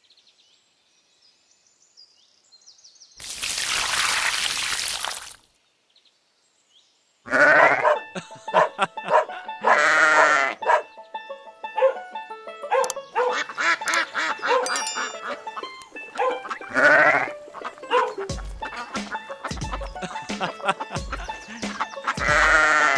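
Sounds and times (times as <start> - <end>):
sheep bleating: 7.3 - 7.8, 9.6 - 10.6, 16.7 - 17.4, 22.1 - 22.9
light background music: 7.8 - 22.9.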